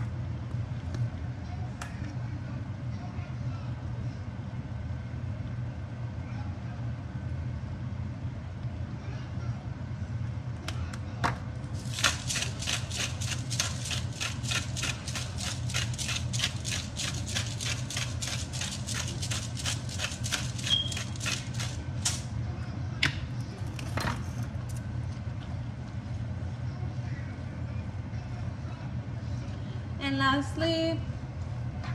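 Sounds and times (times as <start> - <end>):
spice shaker rattling: 11.8 - 22.3.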